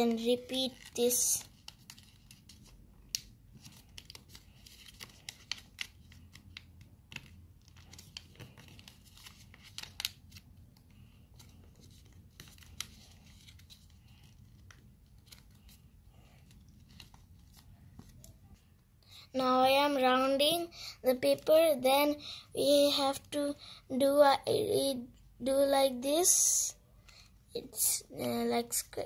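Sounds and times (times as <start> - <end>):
paper rustling and crinkling: 3.5 - 18.6.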